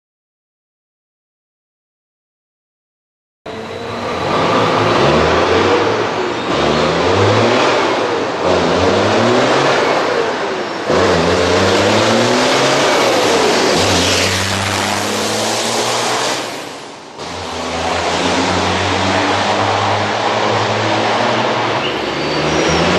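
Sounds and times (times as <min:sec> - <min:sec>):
truck diesel engine revving: 0:03.5 - 0:22.9.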